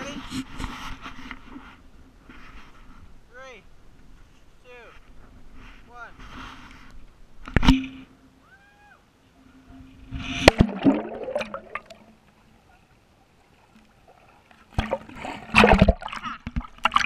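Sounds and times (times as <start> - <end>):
splash of water entry: 10.2 - 12.1, 14.7 - 17.0
muffled underwater bubbling: 10.2 - 12.2
loud splashing: 10.3 - 12.0.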